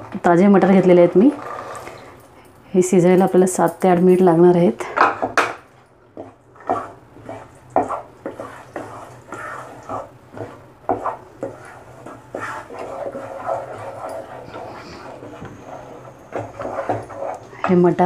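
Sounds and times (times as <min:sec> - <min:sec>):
spatula scraping and knocking pot: 0:04.9 - 0:18.0.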